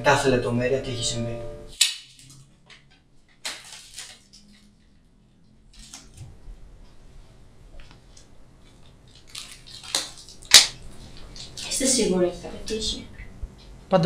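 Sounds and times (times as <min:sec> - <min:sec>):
gloved hands rustling rubbery skin: 0:07.8 - 0:12.0.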